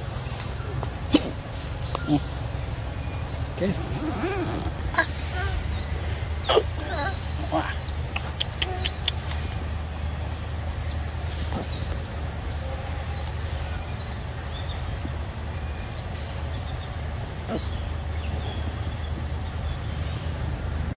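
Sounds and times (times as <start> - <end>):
faint chirps: 0.0 - 20.9
insects droning: 0.0 - 20.9
steady low hum: 0.0 - 20.9.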